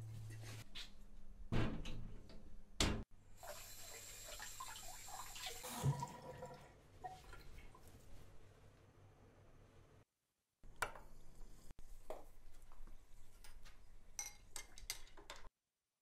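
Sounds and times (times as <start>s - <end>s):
tap running into a sink: 5.7s - 6.3s.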